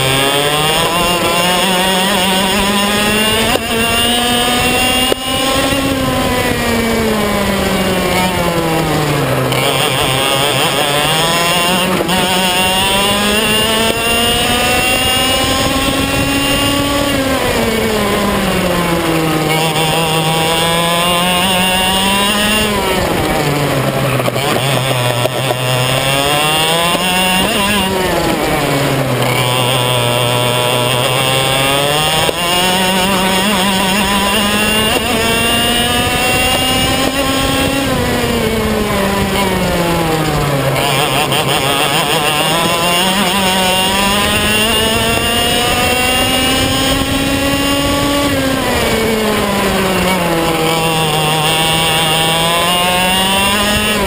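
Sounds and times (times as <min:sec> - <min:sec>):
kart engine revving: 0:00.0 - 0:54.0.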